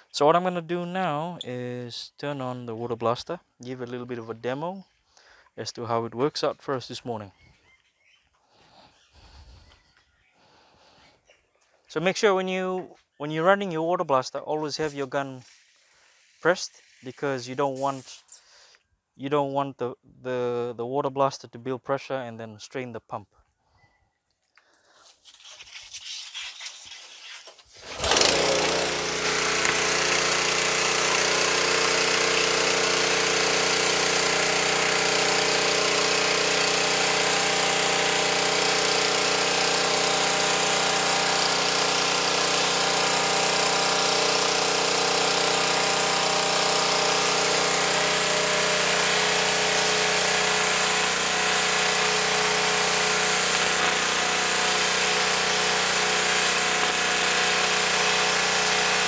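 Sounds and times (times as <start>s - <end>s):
water jet hissing on concrete: 16.9s - 18.4s, 25.1s - 59.0s
pressure washer engine running: 17.7s - 18.2s, 27.8s - 59.0s.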